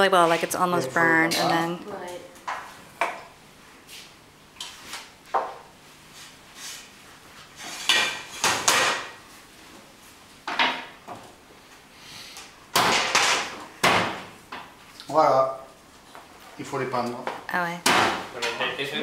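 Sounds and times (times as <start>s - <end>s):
dishes and utensils clattering: 7.6s - 9.1s.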